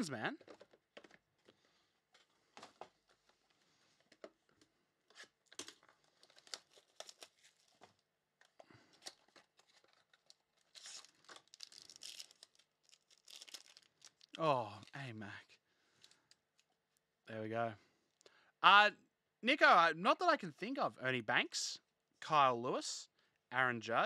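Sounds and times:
cardboard clicks and rustles: 0.4s - 12.0s
foil wrapper crinkling and tearing: 5.2s - 8.0s, 8.9s - 14.4s.

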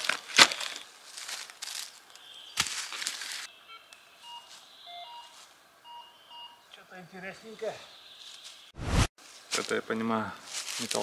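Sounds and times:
metal detector beeps: 3.7s - 6.6s.

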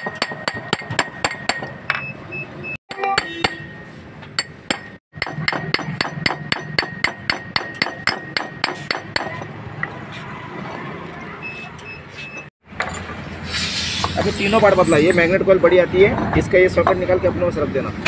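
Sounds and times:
hammer tapping metal: 0.0s - 2.1s, 2.9s - 10.0s.

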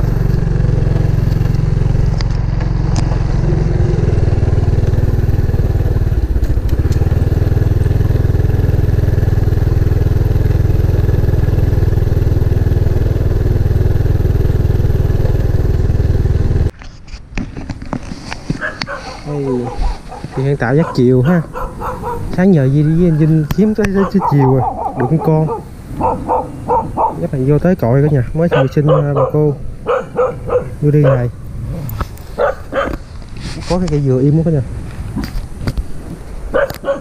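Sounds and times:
motorcycle engine rumbling: 0.0s - 16.8s, 17.6s - 37.0s.

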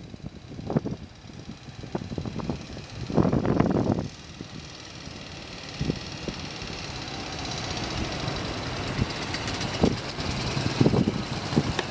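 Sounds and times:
motorcycle engine running: 0.0s - 11.9s
sharp knocks through exhaust: 8.9s - 11.9s.

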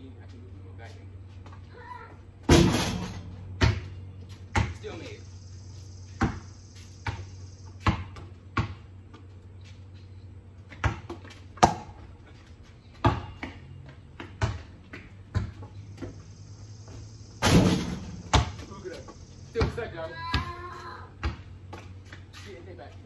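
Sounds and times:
basketball bouncing on concrete: 2.4s - 5.1s, 6.1s - 9.4s, 10.6s - 12.1s, 12.9s - 16.4s, 17.5s - 22.3s.

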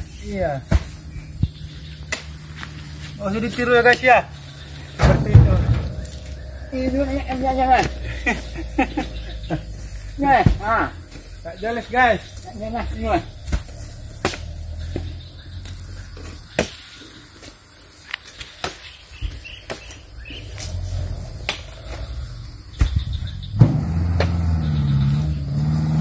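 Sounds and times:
vehicle engine wavering pitch: 3.4s - 16.6s
low rumble: 4.3s - 16.6s.

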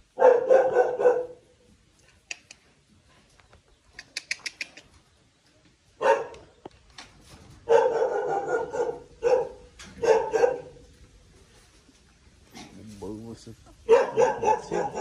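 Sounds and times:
dog barking: 0.2s - 1.4s, 6.0s - 6.4s, 7.6s - 10.8s, 13.8s - 15.0s.

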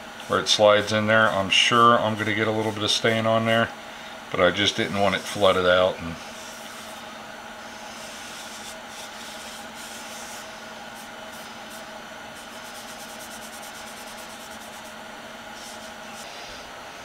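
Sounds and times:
steady hum: 0.0s - 17.0s
rag wiping wood: 4.6s - 16.7s.

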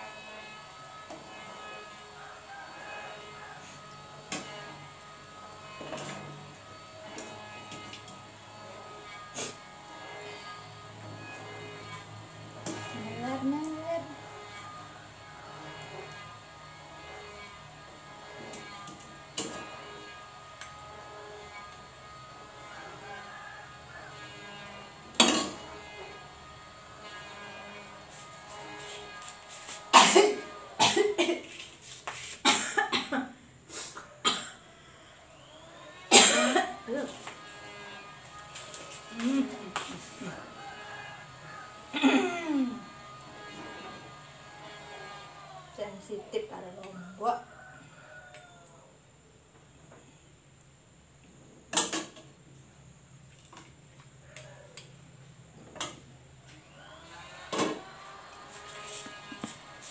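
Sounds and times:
woman coughing: 29.9s - 31.5s, 32.4s - 33.4s, 34.2s - 34.6s, 36.1s - 36.8s, 42.0s - 42.7s.

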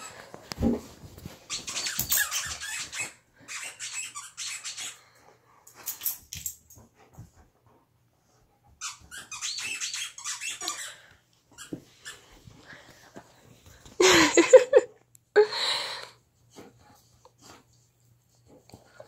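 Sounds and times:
squeaky toy squeaking: 1.5s - 5.0s, 8.8s - 11.0s.

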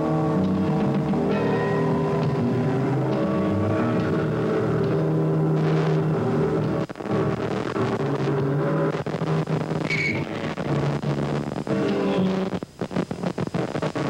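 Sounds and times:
rock band playing sustained chords: 0.0s - 8.9s, 9.9s - 12.4s.

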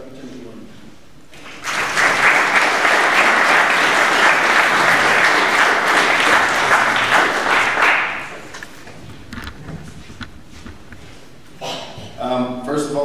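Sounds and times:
audience applauding: 1.3s - 8.9s.

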